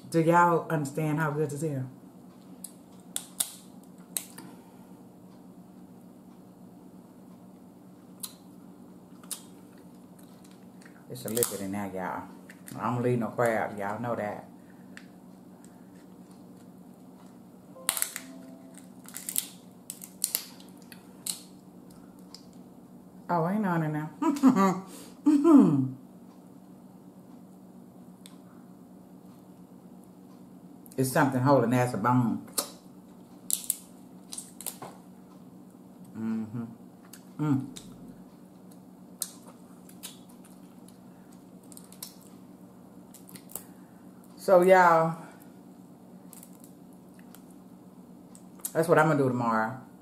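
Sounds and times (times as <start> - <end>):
steady low hum: 0.0 - 50.0
crab shell cracking: 2.6 - 4.4, 9.1 - 11.6, 17.9 - 22.6, 33.4 - 34.9, 38.6 - 42.3, 43.0 - 43.7, 46.3 - 47.6.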